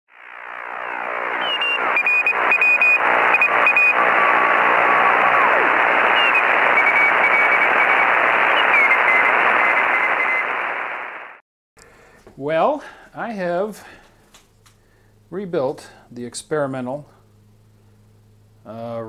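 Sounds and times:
shortwave radio static hiss: 0.1s - 11.4s
whistling tones sliding down: 0.7s - 10.8s.

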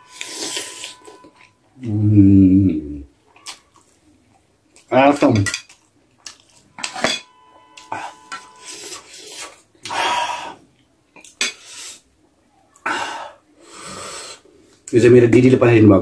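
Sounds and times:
fork scraping on plate: 0.0s - 1.5s, 5.5s - 9.6s
plates and cutlery clattering: 5.2s - 9.1s
plate clinking: 5.4s - 8.9s.

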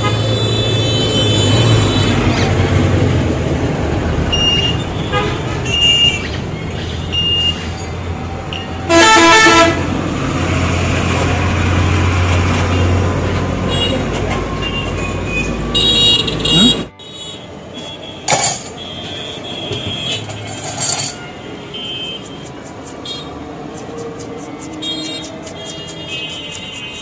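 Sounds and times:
traffic engine rumble: 0.0s - 17.0s
loud vehicle horn blast: 8.9s - 9.9s.

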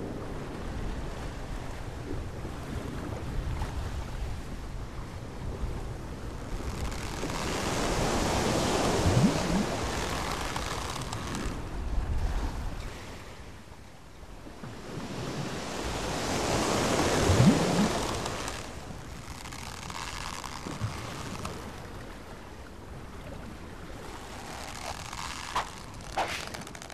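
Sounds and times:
sea waves washing: 0.0s - 13.5s, 14.6s - 26.9s
wind: 0.0s - 26.9s.

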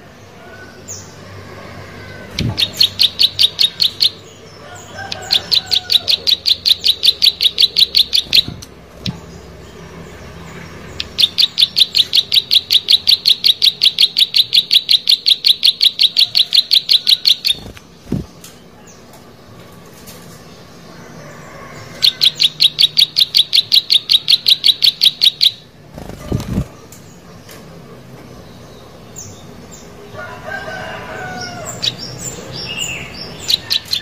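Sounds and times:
bird singing sharp high notes: 2.3s - 4.2s, 5.2s - 9.4s, 10.9s - 17.8s.

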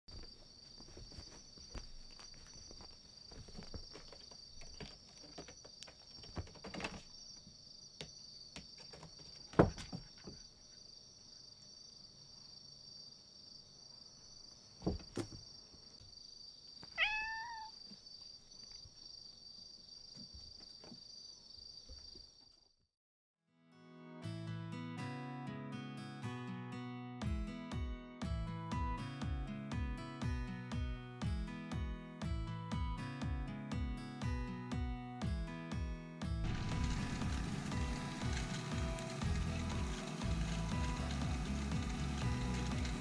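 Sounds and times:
cats scuffling on carpet: 0.1s - 7.2s
cat meowing: 16.9s - 17.8s.

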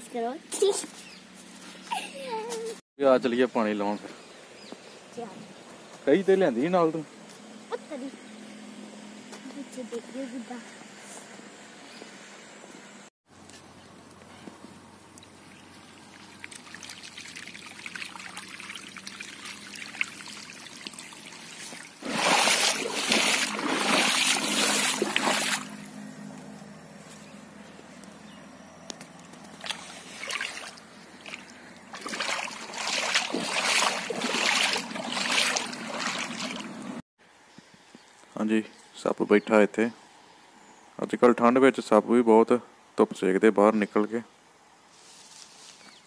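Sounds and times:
water running in a channel: 15.1s - 25.8s, 29.6s - 37.0s.

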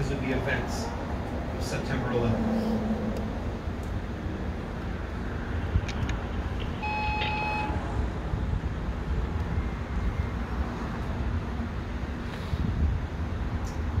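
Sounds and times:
distant traffic: 0.0s - 14.0s
wind: 0.0s - 14.0s
short electronic beep: 6.8s - 7.8s.

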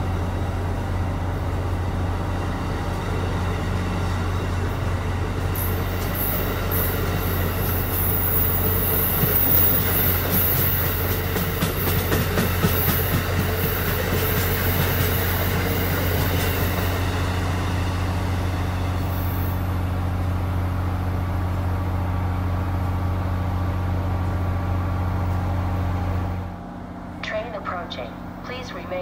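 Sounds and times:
low rumble of train: 0.0s - 29.0s
train wheels clicking over rail joints: 5.5s - 16.9s.

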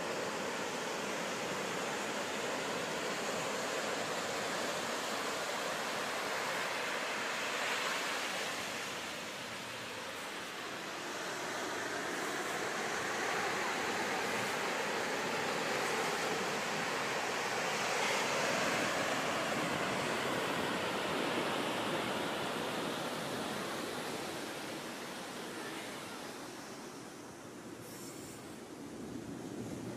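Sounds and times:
waves breaking: 0.1s - 25.5s.

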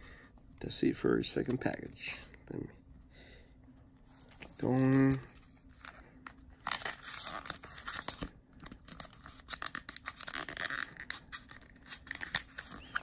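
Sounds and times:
foil wrapper crinkling and tearing: 6.6s - 13.0s.

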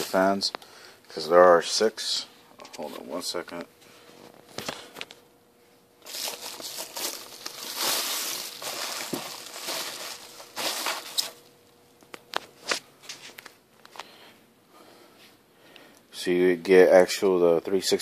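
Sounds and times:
bubble wrap crinkling: 6.0s - 11.5s.

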